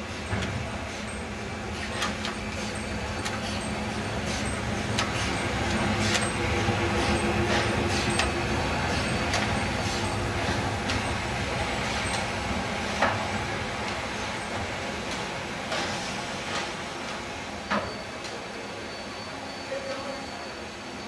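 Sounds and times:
steam locomotive hum and hiss: 0:00.0 - 0:21.0.

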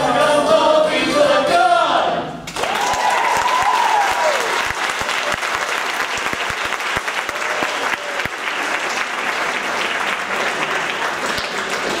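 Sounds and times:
audience applauding: 0:02.5 - 0:12.0.

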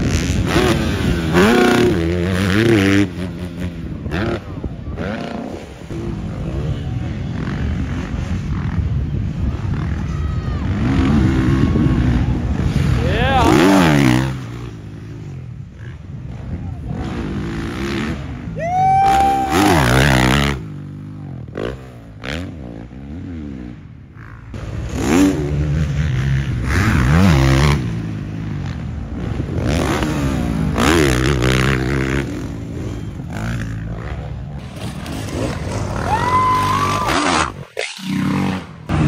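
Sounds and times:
dirt bike engines revving: 0:00.0 - 0:39.0
person shouting: 0:18.6 - 0:20.0.

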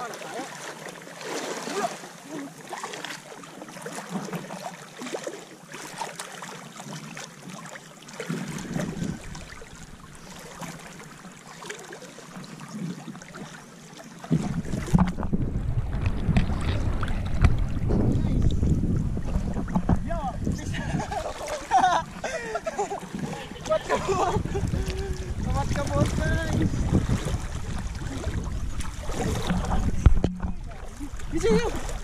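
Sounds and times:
water splashing around wading legs: 0:00.0 - 0:32.0
wind buffeting microphone: 0:08.4 - 0:10.1, 0:14.3 - 0:32.0.

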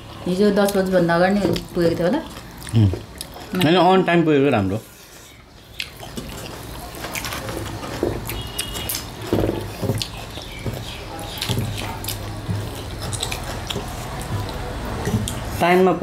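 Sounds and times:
wet smacking and chewing: 0:01.5 - 0:03.8, 0:05.3 - 0:15.5
fingers mixing rice on brass plate: 0:05.0 - 0:15.6.

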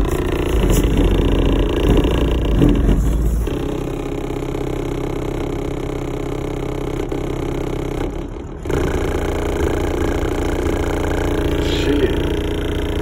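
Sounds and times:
car body panels rattling: 0:00.0 - 0:03.6
bass-heavy rap music: 0:11.4 - 0:13.0.

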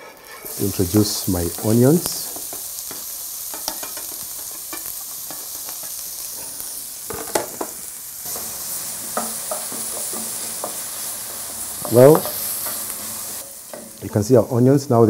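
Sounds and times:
onions sizzling in oil: 0:00.0 - 0:15.0
wooden spoon stirring: 0:08.3 - 0:14.0.

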